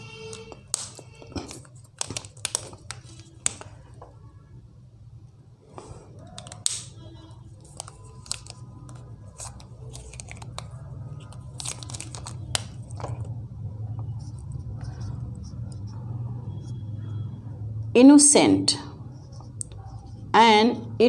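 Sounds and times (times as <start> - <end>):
marker clicks: 0.3 - 3.7, 6.4 - 6.9
marker scratching on whiteboard: 14.0 - 17.2, 18.8 - 20.4.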